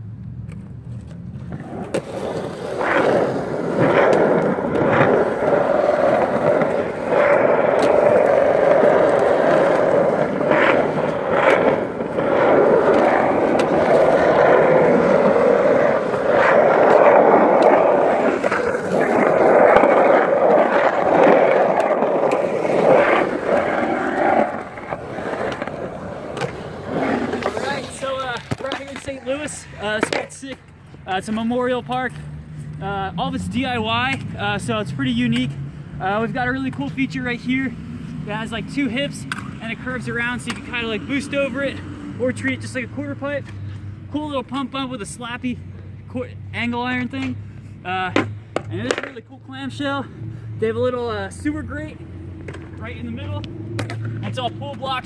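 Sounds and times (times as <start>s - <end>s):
skateboard wheels rolling on concrete: 0.0s - 55.0s
skateboard clacks: 1.4s - 30.6s, 48.2s - 49.2s.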